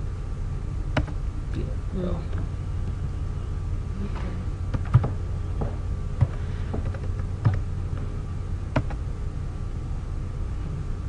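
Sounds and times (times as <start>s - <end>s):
low hum: 0.0s - 11.0s
keyboard keystrokes: 1.0s - 1.2s, 4.7s - 5.2s, 8.7s - 9.0s.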